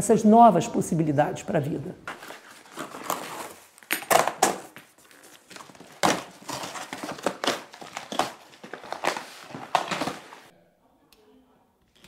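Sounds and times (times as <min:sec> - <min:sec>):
cardboard scraping and crinkling: 0:02.0 - 0:10.5.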